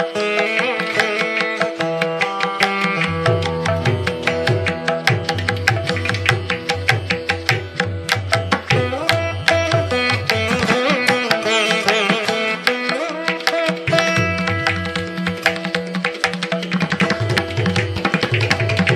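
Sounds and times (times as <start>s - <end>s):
plucked string melody: 0.0s - 18.9s
drum strokes: 1.6s - 11.4s.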